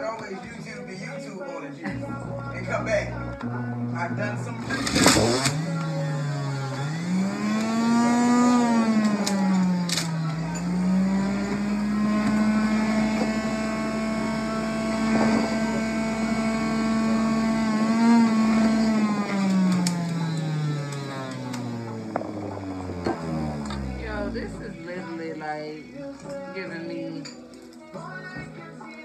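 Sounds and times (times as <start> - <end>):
juicer motor whining: 2.6 - 24.6
juicer clicks: 4.6 - 5.9, 7.4 - 13.4, 18.3 - 23.9.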